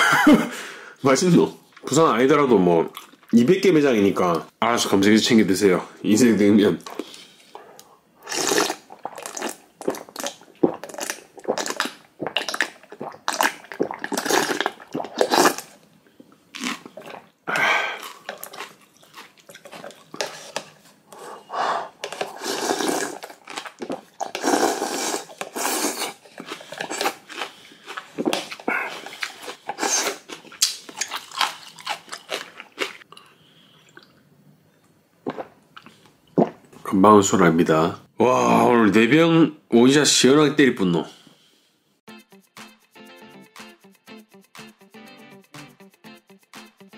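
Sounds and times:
noodles slurped: 0:08.2 - 0:15.7, 0:22.0 - 0:33.0
food chewing: 0:17.9 - 0:21.2, 0:22.0 - 0:34.2.

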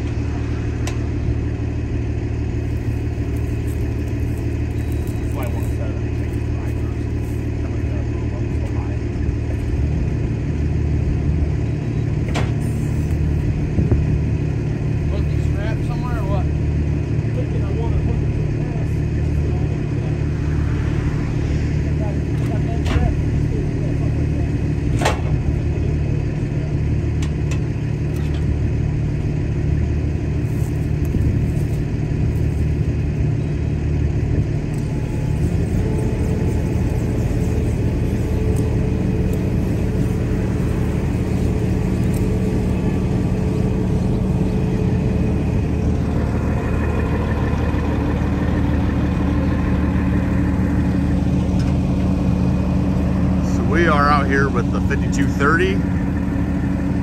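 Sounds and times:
heavy diesel engine running: 0:00.0 - 0:57.0
high whine: 0:17.5 - 0:25.9, 0:29.9 - 0:57.0.

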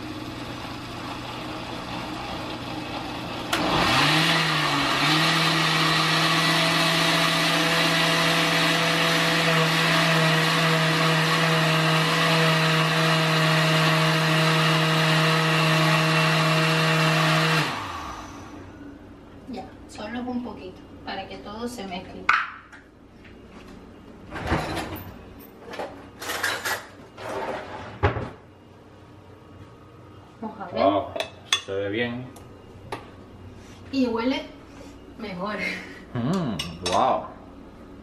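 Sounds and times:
blender motor running: 0:00.0 - 0:18.7.

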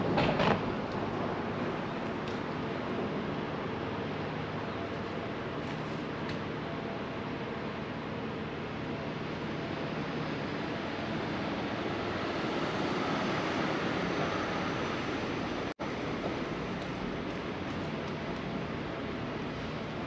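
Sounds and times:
city street traffic roar: 0:00.0 - 0:20.0.

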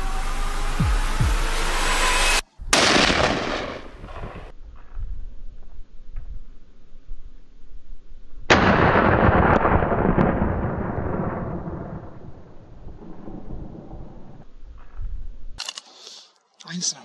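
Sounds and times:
rifle shot with echo: 0:02.7 - 0:04.5.

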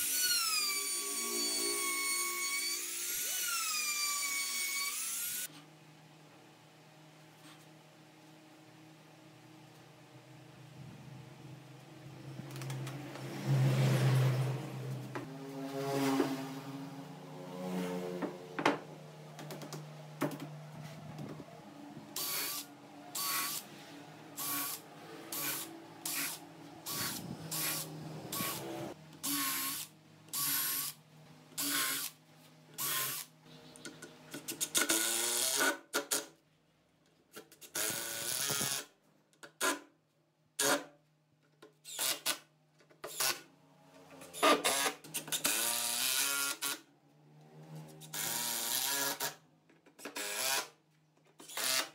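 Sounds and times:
drill driving screws into wood: 0:00.0 - 0:05.5, 0:22.2 - 0:23.6, 0:24.4 - 0:31.0, 0:31.6 - 0:32.2, 0:32.8 - 0:33.3, 0:34.4 - 0:36.3, 0:37.6 - 0:38.9, 0:41.8 - 0:43.4, 0:44.4 - 0:46.8, 0:48.0 - 0:49.4, 0:50.0 - 0:50.8, 0:51.4 - 0:51.9.

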